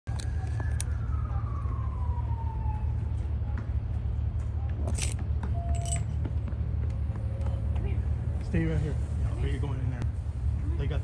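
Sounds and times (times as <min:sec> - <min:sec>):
police siren wail: 0:00.1 - 0:03.6.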